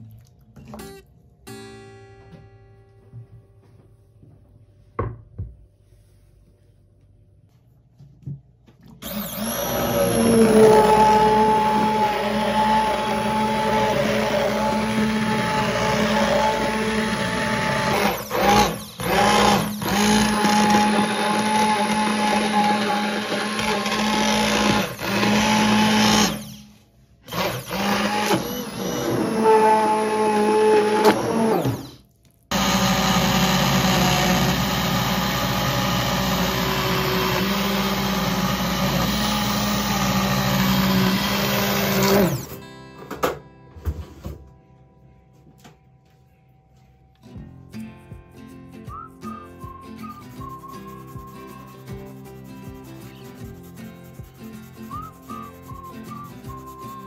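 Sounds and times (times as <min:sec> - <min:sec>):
immersion blender whine: 0:09.0 - 0:42.6.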